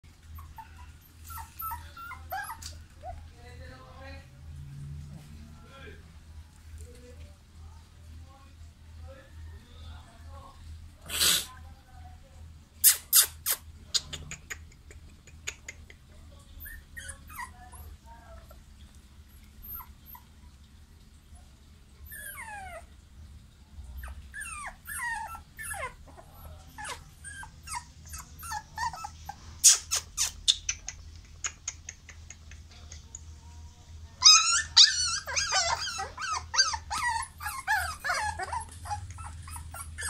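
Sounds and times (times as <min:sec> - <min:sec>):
puppies whining and whimpering: 0:00.2 - 0:03.4, 0:16.6 - 0:18.6, 0:19.4 - 0:20.6, 0:22.0 - 0:23.0, 0:23.9 - 0:30.5, 0:34.2 - 0:40.0.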